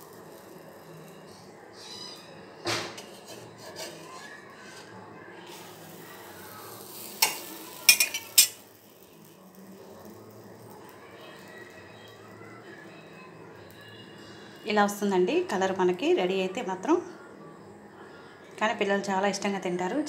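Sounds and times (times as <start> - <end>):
metal spatula scraping griddle: 2.8 - 8.6
metal clinks against pan: 7.2 - 8.6.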